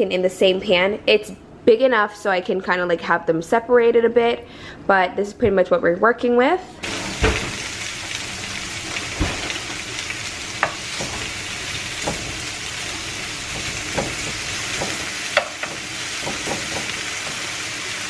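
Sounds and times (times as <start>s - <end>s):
food sizzling in frying pan: 6.8s - 18.0s.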